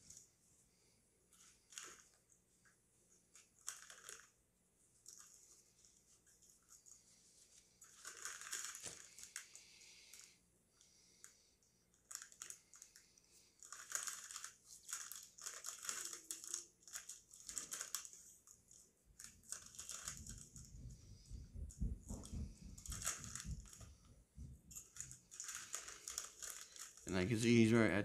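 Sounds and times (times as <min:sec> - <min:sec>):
snack bag crinkling: 0:01.4 - 0:02.2, 0:03.3 - 0:04.4, 0:05.0 - 0:20.6, 0:24.8 - 0:27.7.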